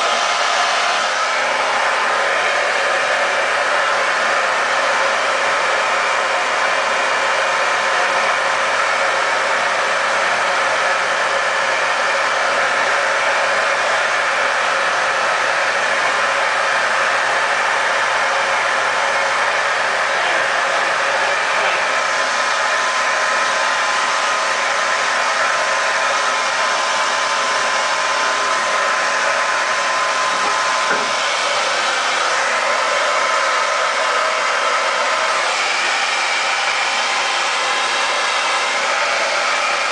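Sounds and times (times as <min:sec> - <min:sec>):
blow dryer running: 0:00.0 - 0:39.9.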